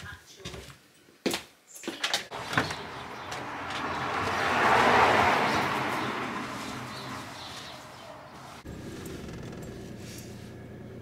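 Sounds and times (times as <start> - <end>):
car passing: 2.3 - 9.1.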